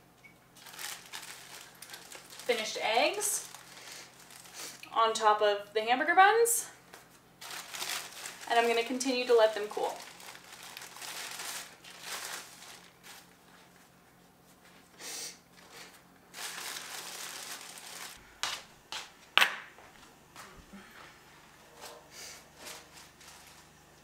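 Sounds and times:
plastic bag crinkling: 0.6s - 4.8s, 7.4s - 13.9s, 15.6s - 18.7s, 22.5s - 24.0s.

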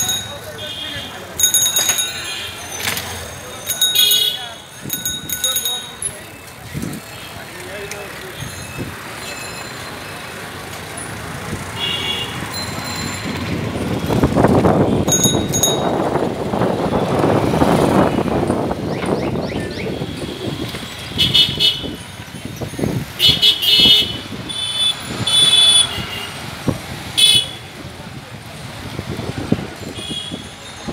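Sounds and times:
busy street traffic: 0.0s - 30.9s
vehicle engine noise: 6.2s - 30.5s.

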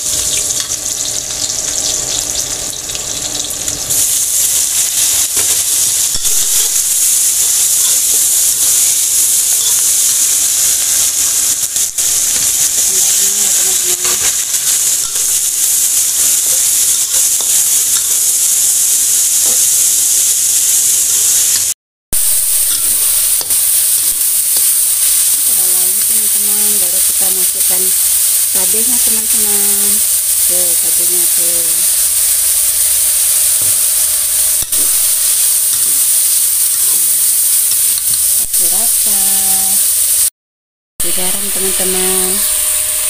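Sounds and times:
food sizzling in hot oil: 0.0s - 40.3s, 41.0s - 43.0s
metal spatula scraping wok: 9.5s - 18.4s.

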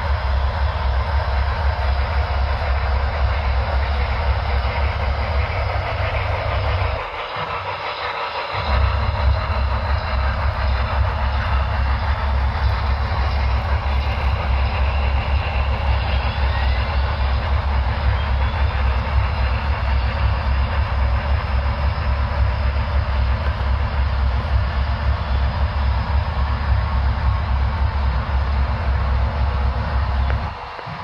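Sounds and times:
model train rumbling: 0.0s - 31.0s.

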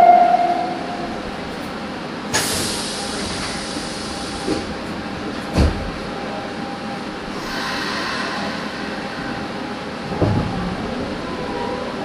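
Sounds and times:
train car humming: 0.0s - 12.0s
sharp hiss of doors: 2.3s - 4.7s
heavy thump of doors closing: 10.1s - 10.9s.

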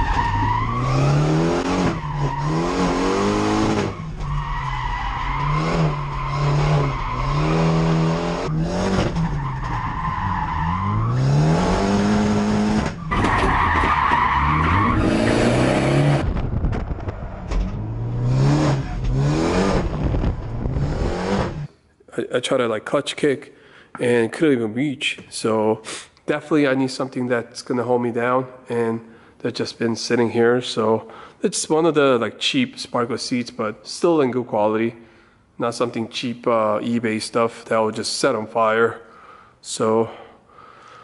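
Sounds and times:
car engine revving: 0.0s - 21.7s.

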